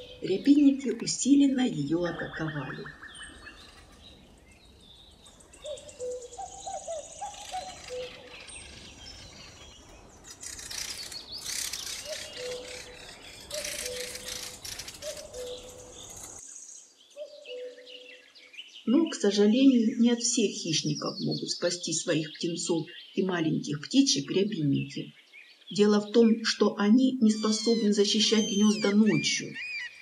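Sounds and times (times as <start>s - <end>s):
birds harsh rasping chatter: 0.0s - 16.4s, 27.2s - 30.0s
short low bird calls: 5.6s - 9.6s, 10.3s - 16.4s.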